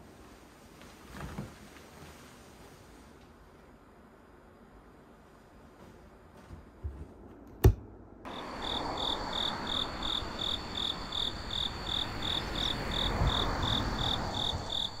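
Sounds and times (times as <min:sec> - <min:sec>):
low background hiss: 0:00.0 - 0:06.8
high insect trills: 0:08.3 - 0:15.0
insects chirping: 0:08.3 - 0:15.0.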